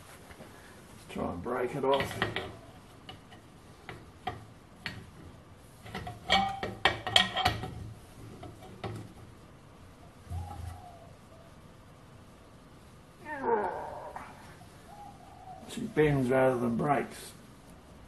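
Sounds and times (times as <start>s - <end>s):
metallic clanks: 1.9s - 5.2s, 5.8s - 9.2s
spanner knocking on metal rim: 5.8s - 7.8s.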